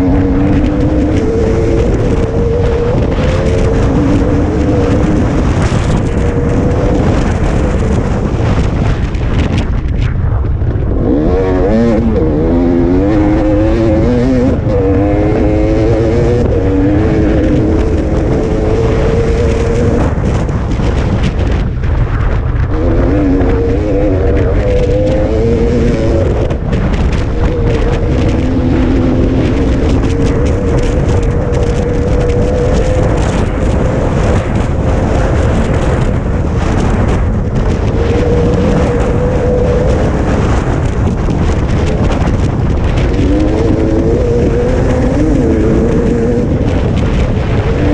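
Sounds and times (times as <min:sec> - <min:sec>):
dirt bike engine revving: 0:00.0 - 0:09.0, 0:10.8 - 0:21.3, 0:22.7 - 0:47.9
wind rumble on microphone: 0:00.0 - 0:47.9.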